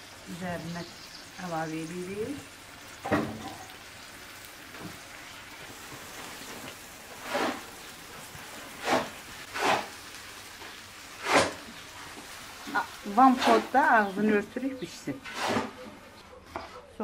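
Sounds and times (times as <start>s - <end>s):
frying sizzle: 0.0s - 15.8s
greens swishing into pan: 6.4s - 10.0s, 11.2s - 11.8s, 13.1s - 14.2s.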